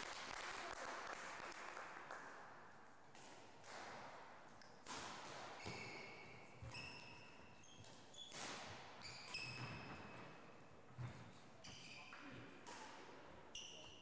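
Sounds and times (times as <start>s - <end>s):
shoes squeaking on wooden floor: 5.6s - 8.3s, 11.0s - 12.3s.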